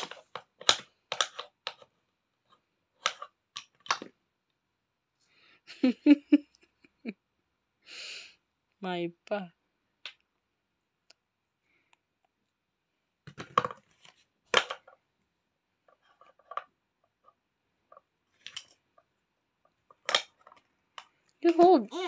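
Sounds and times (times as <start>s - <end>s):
wooden toy pieces clacking on board: 0.0s - 1.9s, 3.0s - 4.1s, 14.5s - 15.0s, 15.9s - 19.1s, 19.7s - 21.6s.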